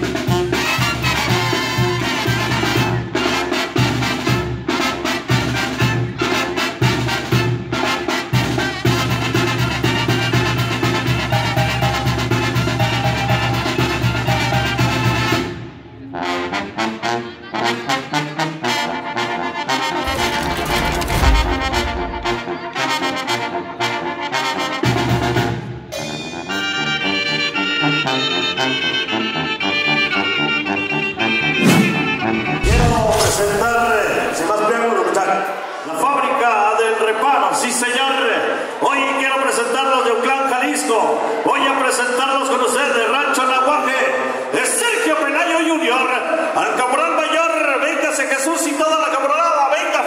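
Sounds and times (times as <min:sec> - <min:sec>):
brass band music: 0:00.0 - 0:34.7
regular drum beat: 0:20.0 - 0:22.6.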